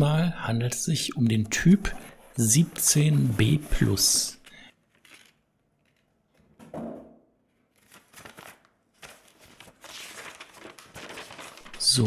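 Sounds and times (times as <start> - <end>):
cardboard scrape: 2.0 - 4.2
paper rustling and crinkling: 4.9 - 6.0, 7.7 - 12.0.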